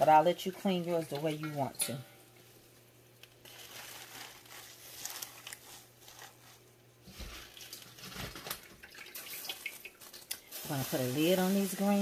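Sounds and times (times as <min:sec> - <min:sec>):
leaves rustling and crackling: 0:03.3 - 0:08.6, 0:09.2 - 0:12.0.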